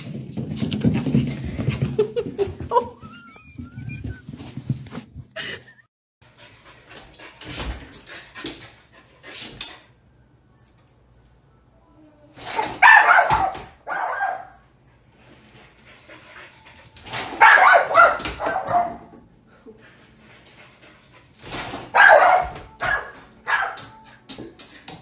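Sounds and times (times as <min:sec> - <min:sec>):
dog barking excitedly: 0:12.6 - 0:14.6, 0:17.2 - 0:19.1, 0:21.9 - 0:24.0.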